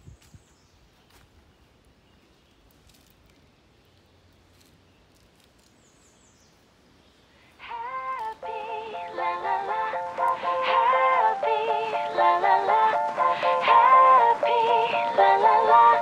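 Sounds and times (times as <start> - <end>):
bright melodic background music: 8.2 - 16.0.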